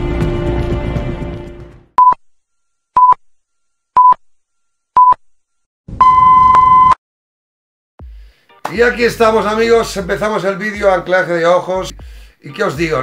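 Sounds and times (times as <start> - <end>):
music: 0.0 - 2.0, 8.0 - 13.0.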